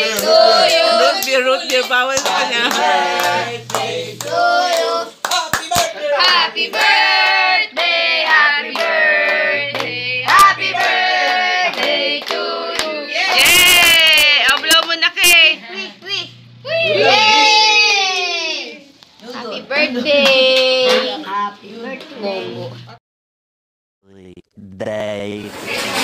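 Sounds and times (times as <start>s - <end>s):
people singing: 0.0s - 13.6s
people clapping: 0.0s - 15.4s, 20.1s - 21.2s.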